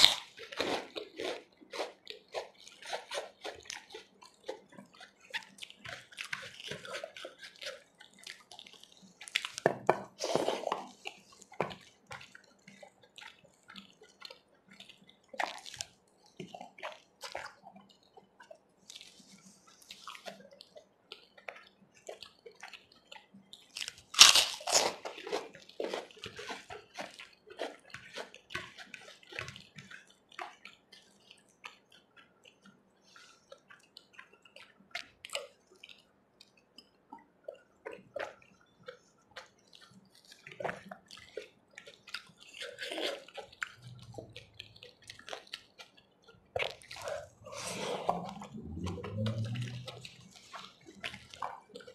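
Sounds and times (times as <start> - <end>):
fingers squishing food: 0.0 - 51.9
wet chewing and mouth smacks: 0.0 - 51.9
short wet clicks: 48.1 - 51.9.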